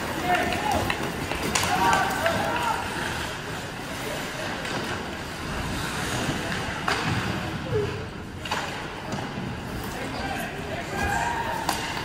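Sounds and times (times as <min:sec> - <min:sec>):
ice rink ambience: 0:00.0 - 0:12.0.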